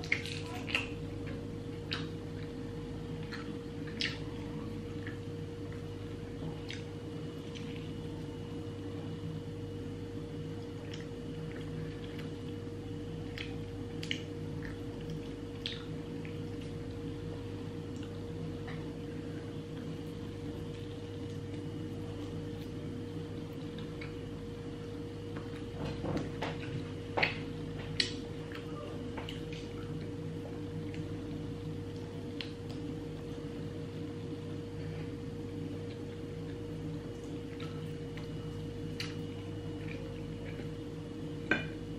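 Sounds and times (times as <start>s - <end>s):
chewing and tearing chicken: 0.0s - 8.4s, 10.5s - 25.8s
steady low hum: 0.0s - 41.9s.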